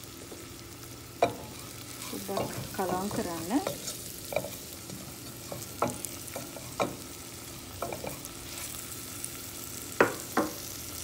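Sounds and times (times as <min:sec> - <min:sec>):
food sizzling in oil: 0:00.0 - 0:11.0
spatula scraping pot: 0:01.2 - 0:07.0.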